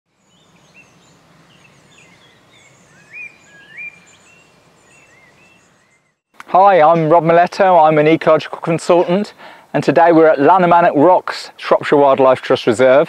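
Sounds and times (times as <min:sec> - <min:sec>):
birds singing and calling: 0:00.1 - 0:07.2
rising whistled bird notes: 0:00.2 - 0:06.2
faint background hiss: 0:00.2 - 0:13.0.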